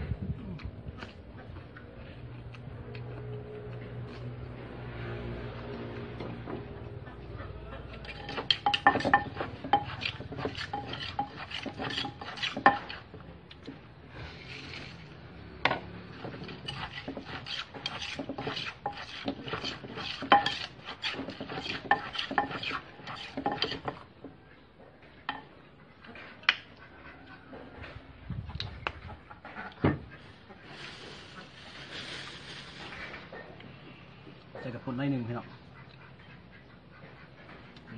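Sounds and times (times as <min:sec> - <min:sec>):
spoon scraping: 0:08.0 - 0:13.2, 0:16.3 - 0:24.0
pestle pounding in a mortar: 0:08.0 - 0:13.3, 0:15.7 - 0:24.0.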